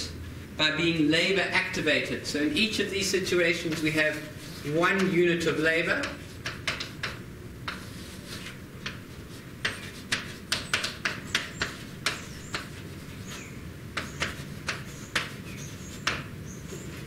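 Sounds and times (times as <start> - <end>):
sharp taps and clicks: 6.0 - 7.8, 9.6 - 12.7.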